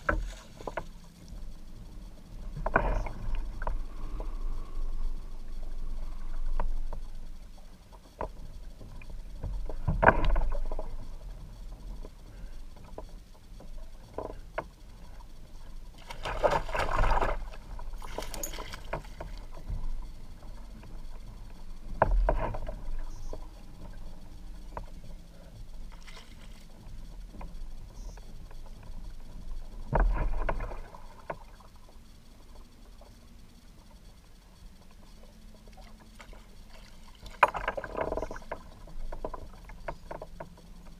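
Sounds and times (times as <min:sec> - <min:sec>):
water splashing around kayak: 0:00.0 - 0:05.2, 0:05.9 - 0:27.9, 0:35.6 - 0:40.9.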